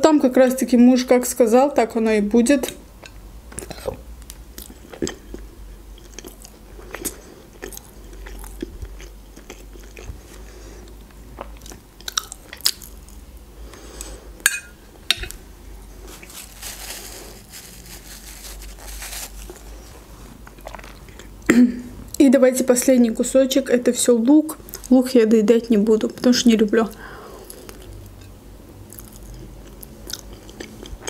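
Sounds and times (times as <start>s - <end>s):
chewing and wet mouth sounds: 2.6s - 14.1s, 19.4s - 21.4s, 26.2s - 31.0s
paper napkin rustling: 15.9s - 20.4s.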